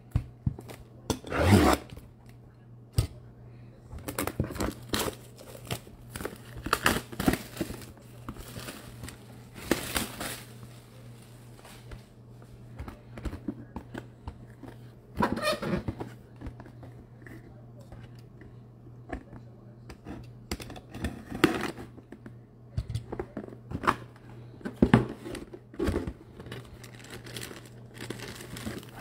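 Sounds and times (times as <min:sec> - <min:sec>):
plastic shrink-wrap ripping: 0:04.1 - 0:10.7, 0:26.6 - 0:29.0
plastic crinkling: 0:04.1 - 0:12.0, 0:26.4 - 0:29.0.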